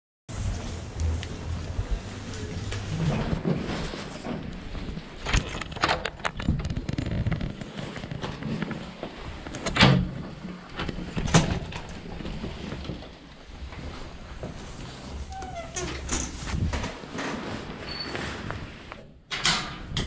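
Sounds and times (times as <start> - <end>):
steady low rumble: 0.3 - 5.2
knocks and clatters: 5.2 - 13.2.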